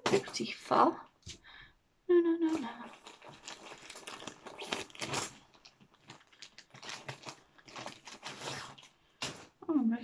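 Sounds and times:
plastic bag crinkling: 2.4 - 9.6.

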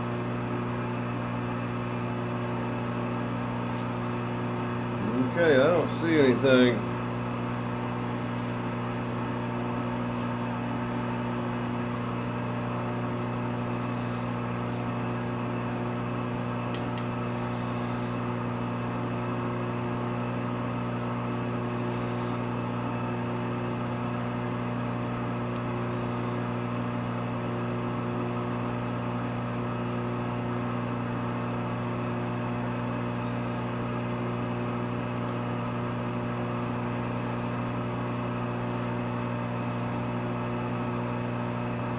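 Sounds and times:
electric hum of shop machinery: 0.0 - 41.9.

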